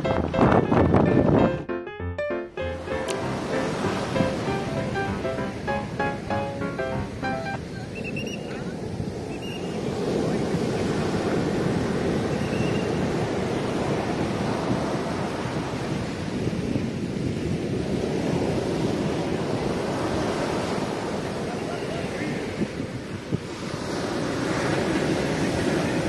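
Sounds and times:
waves breaking on sandy beach: 2.8 - 26.0.

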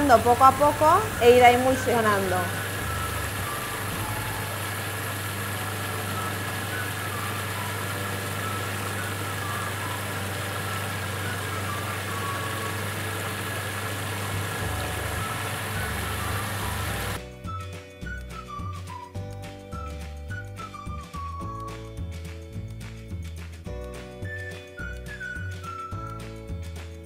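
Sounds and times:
food processor blending: 0.0 - 17.2.

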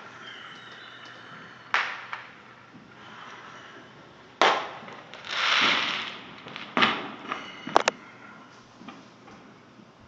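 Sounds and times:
fireworks bangs: 1.7 - 2.6, 4.4 - 7.9.

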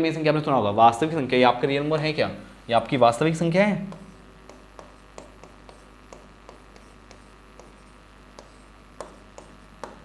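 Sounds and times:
steady low hum: 0.0 - 10.0
marker scratching on whiteboard: 3.2 - 10.0.

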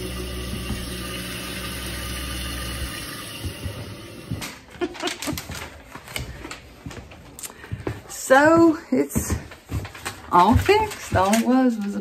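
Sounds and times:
toilet tank refilling hiss: 0.0 - 4.4.

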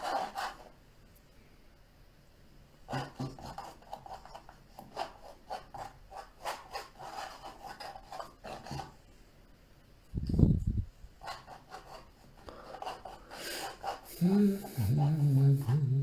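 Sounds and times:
palette knife scraping canvas: 0.0 - 0.7, 2.9 - 9.0, 11.2 - 15.8.

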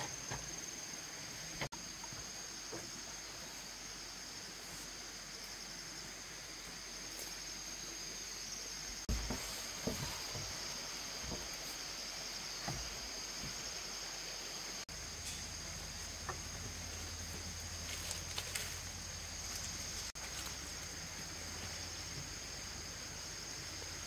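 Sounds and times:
bamboo strips rustling: 15.0 - 22.6.

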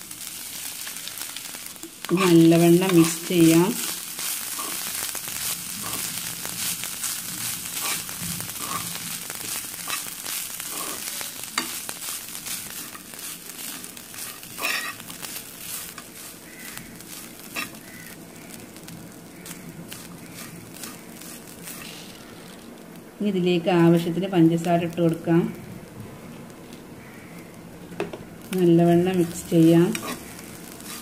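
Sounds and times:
food sizzling in a pan: 0.0 - 31.0
metal spoon scraping a pan: 4.2 - 6.9, 7.7 - 18.0, 29.3 - 31.0.

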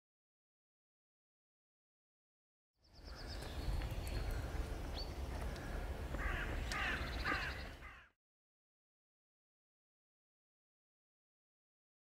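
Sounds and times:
bird chirp: 2.8 - 8.0
crows cawing: 5.3 - 8.2.

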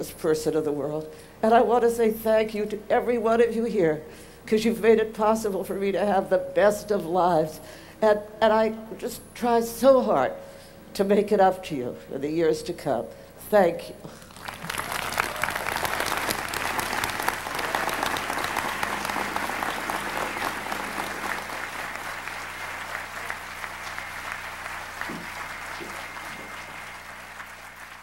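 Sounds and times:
audience applauding: 14.2 - 28.0.

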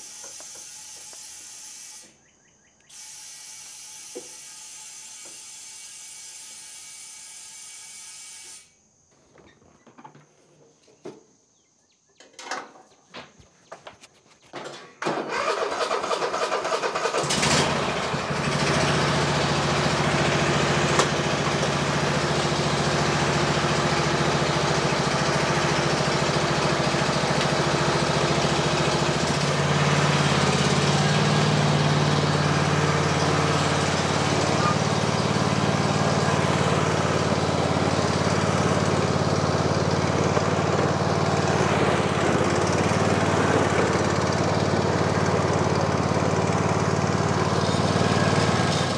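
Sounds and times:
lawn tractor engine running: 14.1 - 48.9.

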